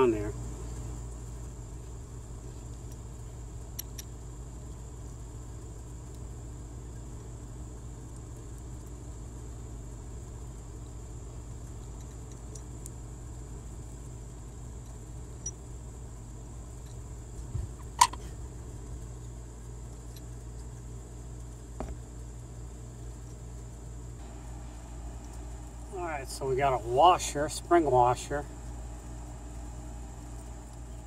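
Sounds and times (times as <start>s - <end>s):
steady low hum: 0.0s - 31.0s
thin high whine: 24.2s - 31.0s.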